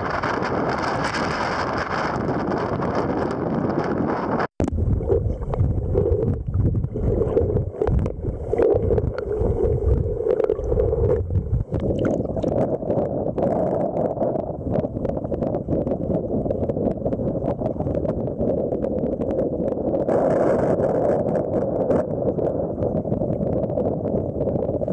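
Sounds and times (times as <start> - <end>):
wind buffeting microphone: 0.0 - 24.9
muffled underwater sloshing and bubbling: 0.2 - 24.9
water lapping and splashing: 4.8 - 13.2
small clicks underwater: 5.1 - 14.2.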